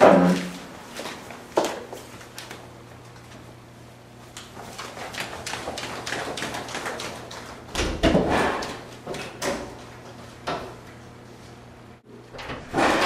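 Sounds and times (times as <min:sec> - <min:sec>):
quick running footsteps: 0:04.4 - 0:07.7.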